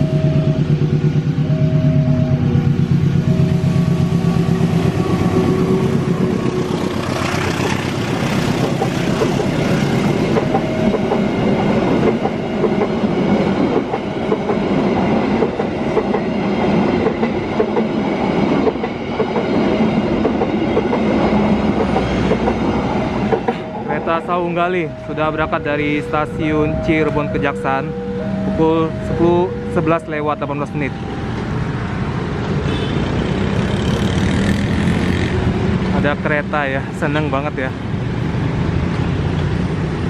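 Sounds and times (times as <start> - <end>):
locomotive engine droning: 0.0 - 37.9
train wheels clattering over rails: 4.0 - 23.8.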